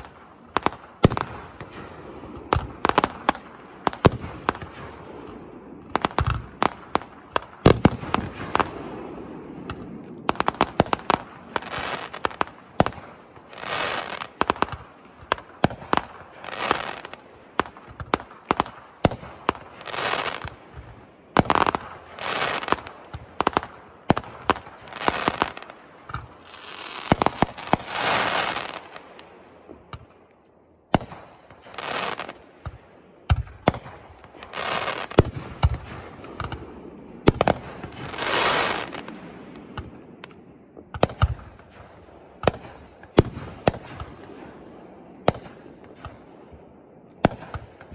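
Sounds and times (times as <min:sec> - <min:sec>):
firework bangs: 0:00.0 - 0:30.2, 0:30.9 - 0:47.9
firework hissing crackle: 0:09.6 - 0:14.7, 0:15.4 - 0:18.2, 0:19.4 - 0:20.6, 0:21.4 - 0:29.3, 0:31.6 - 0:32.4, 0:34.4 - 0:36.6, 0:37.3 - 0:39.2.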